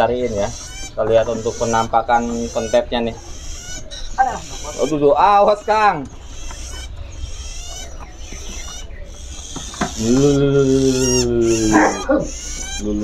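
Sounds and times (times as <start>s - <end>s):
songbirds chirping and twittering: 0.0s - 13.0s
low voice-like tone: 10.0s - 13.0s.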